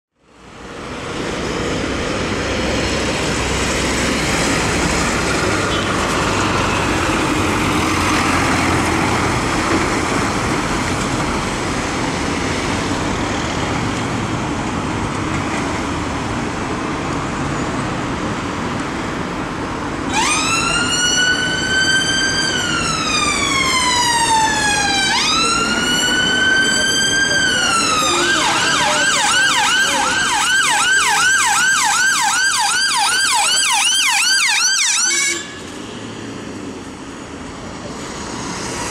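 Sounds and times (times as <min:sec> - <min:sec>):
traffic engines and tyres: 0:00.1 - 0:38.9
ambulance siren wailing: 0:20.1 - 0:35.8.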